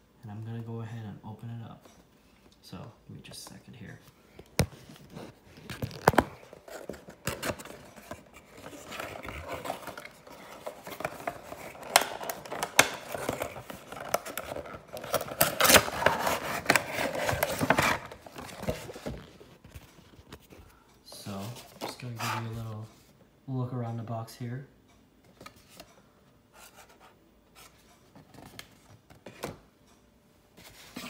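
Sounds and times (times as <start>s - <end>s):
packaging crinkling and rustling: 4.4s - 22.6s.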